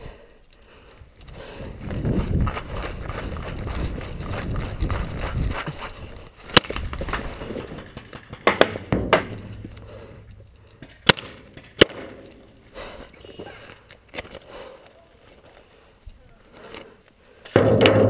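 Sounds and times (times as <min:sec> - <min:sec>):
paintball gun cracks: 0:06.5 - 0:07.2, 0:10.5 - 0:12.5.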